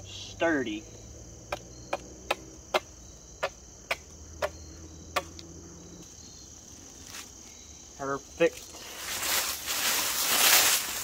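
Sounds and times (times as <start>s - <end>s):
high insect chorus: 0.0s - 11.0s
hatchet chopping wood: 1.5s - 5.4s.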